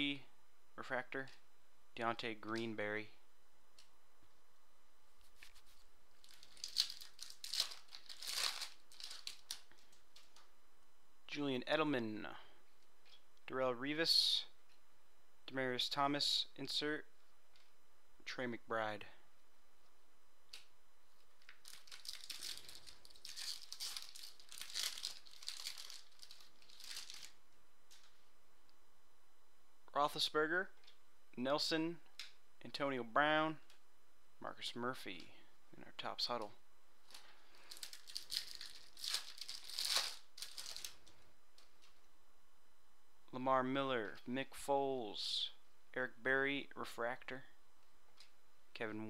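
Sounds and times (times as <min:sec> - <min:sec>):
foil wrapper tearing and crinkling: 0:06.2 - 0:10.4, 0:21.4 - 0:27.4, 0:37.6 - 0:41.2.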